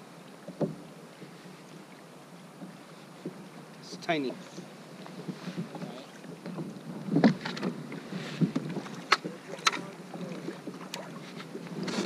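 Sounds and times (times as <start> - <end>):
clicks and knocks against hull: 0.4 - 0.9, 4.5 - 7.8, 8.4 - 12.0.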